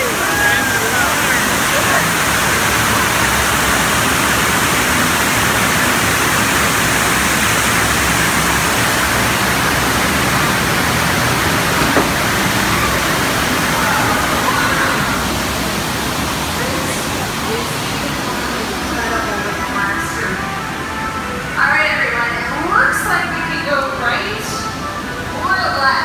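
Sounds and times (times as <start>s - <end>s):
water rushing: 0.0s - 26.0s
short knock: 11.8s - 12.4s.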